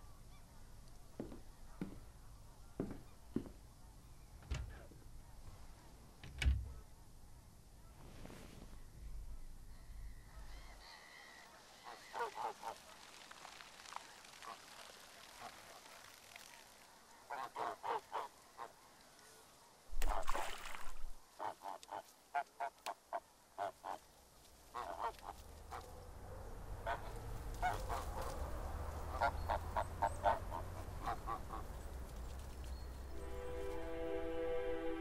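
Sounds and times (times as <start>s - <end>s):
geese honking: 29.1s - 31.8s, 33.1s - 35.0s.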